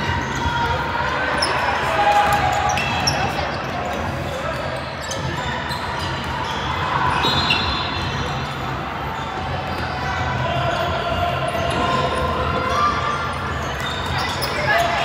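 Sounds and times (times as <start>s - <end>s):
court background noise: 0.0s - 15.0s
shoe squeaks: 2.6s - 10.0s, 13.2s - 15.0s.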